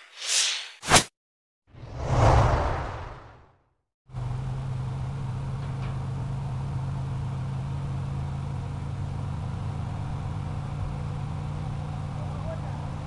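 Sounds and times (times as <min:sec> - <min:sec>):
heavy machine engine humming: 0:04.1 - 0:13.0.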